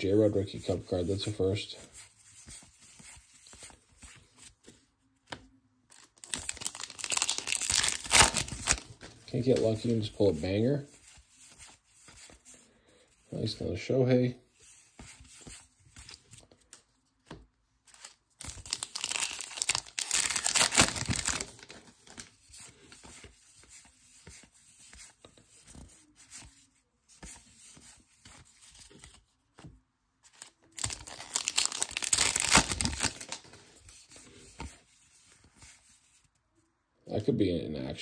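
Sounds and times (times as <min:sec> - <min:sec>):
cards rustling and clicking: 0:00.6 - 0:12.7, 0:14.6 - 0:36.2
wrapper tearing and crinkling: 0:05.9 - 0:09.0, 0:18.4 - 0:21.8, 0:30.8 - 0:33.5.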